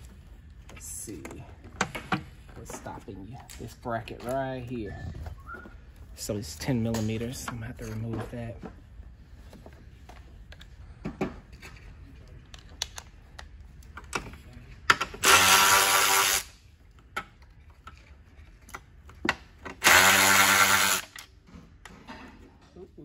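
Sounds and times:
electric ratchet spinning: 15.2 - 16.5, 19.8 - 21.3.

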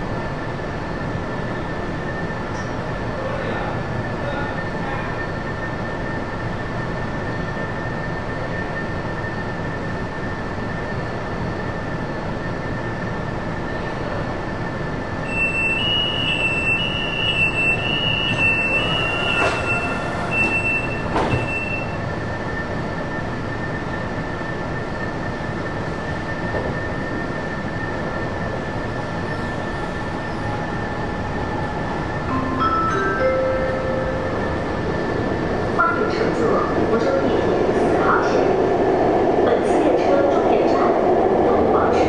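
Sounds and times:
train equipment hum and whine: 0.0 - 42.0
door warning beeping: 15.7 - 22.0
train doors knocking shut: 20.4 - 21.7.

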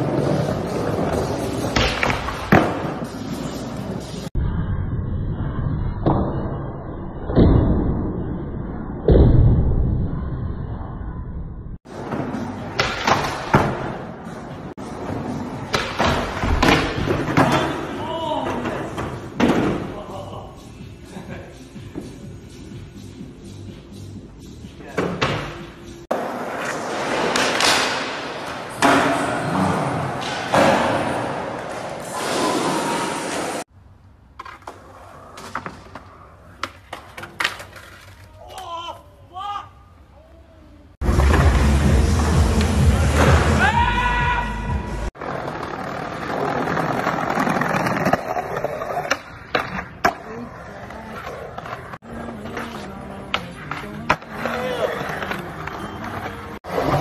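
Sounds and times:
skateboard wheels rolling on concrete: 0.0 - 4.4, 25.4 - 39.1, 44.8 - 57.0
skateboard landing slap: 12.8 - 13.9.

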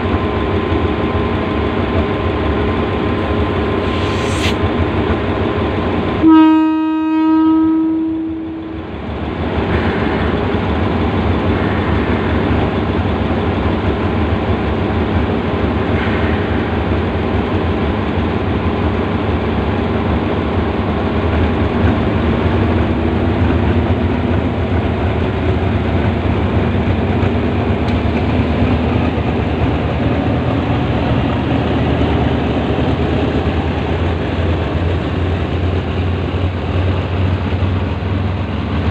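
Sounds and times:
diesel locomotive engine running: 0.0 - 38.9
train track noise: 0.0 - 38.9
locomotive air horn: 6.2 - 8.7.

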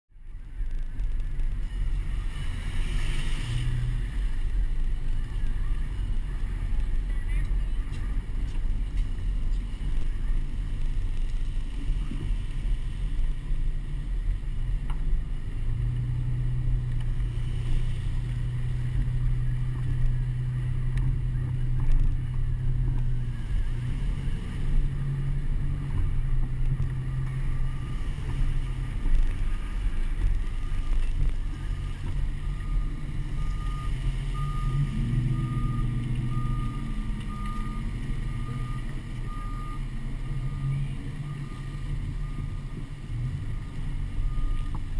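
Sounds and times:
car engine running: 0.1 - 44.9
road and wind rumble: 0.1 - 44.9
reversing alarm beeping: 31.7 - 44.9.

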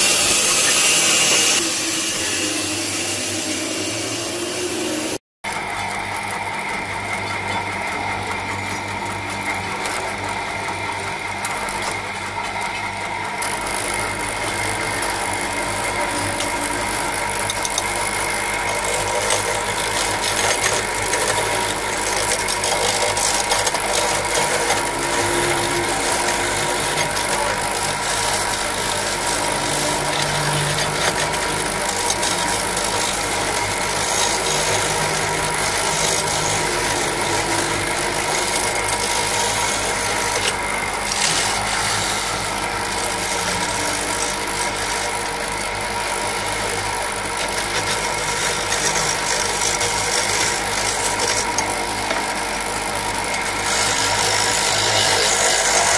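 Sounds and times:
chisel scraping hiss: 0.0 - 5.2
wood lathe motor hum: 0.0 - 55.9.

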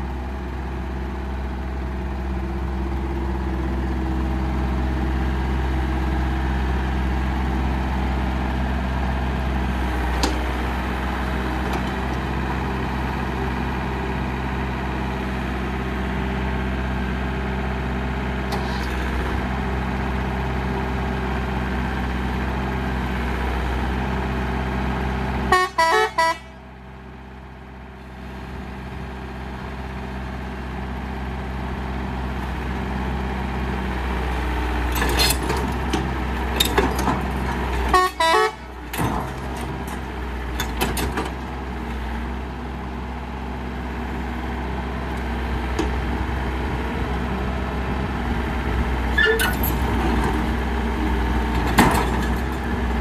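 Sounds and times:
excavator diesel engine running: 0.0 - 53.0.

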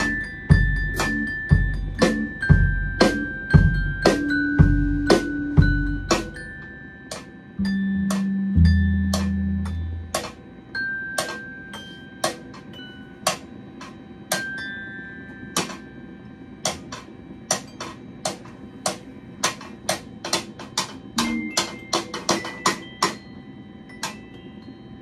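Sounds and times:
glockenspiel notes struck with mallets: 0.0 - 16.0, 21.2 - 25.0.

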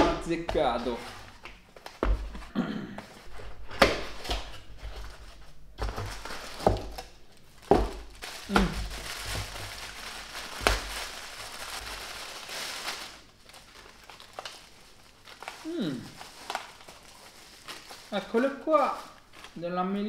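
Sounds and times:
plastic crinkling: 4.0 - 19.7.

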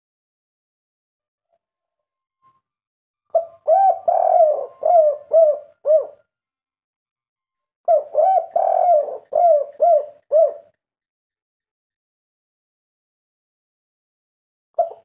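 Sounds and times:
dove cooing: 3.3 - 6.2, 7.9 - 10.8, 14.8 - 15.0.

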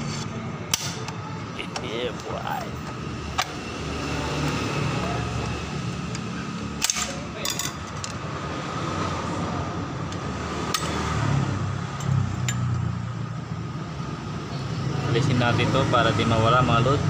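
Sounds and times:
metal parts clicking and clinking: 6.8 - 8.2.

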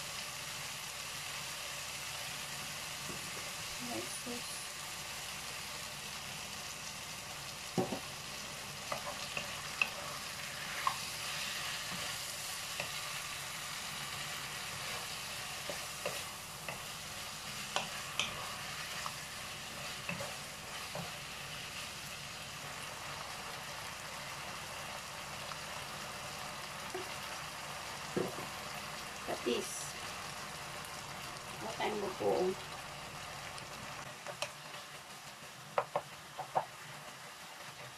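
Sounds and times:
food sizzling in a wok: 0.0 - 37.9.

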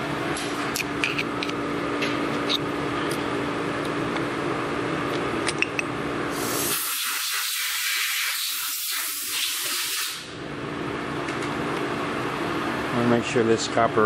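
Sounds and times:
workshop background hum: 0.0 - 14.0.

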